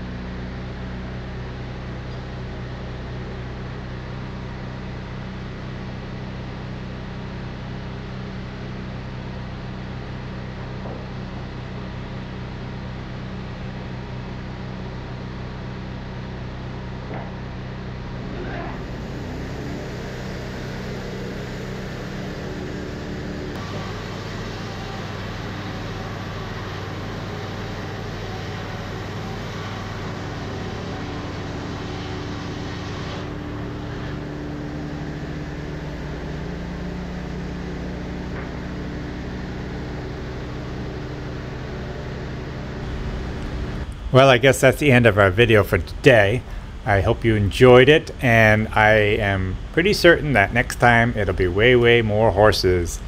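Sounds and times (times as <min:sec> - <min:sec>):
band sawmill sawing: 0:18.0 - 0:46.8.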